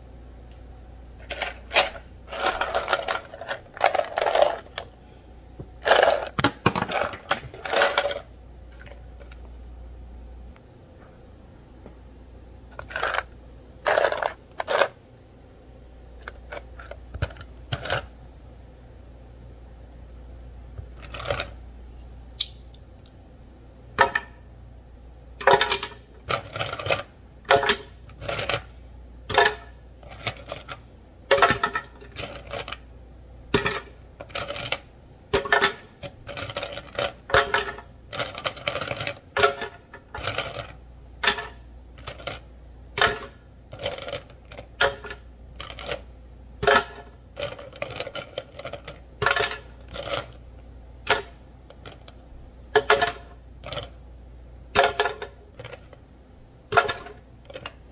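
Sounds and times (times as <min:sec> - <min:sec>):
ice cubes clacking into plastic jar: 0:01.2 - 0:04.8.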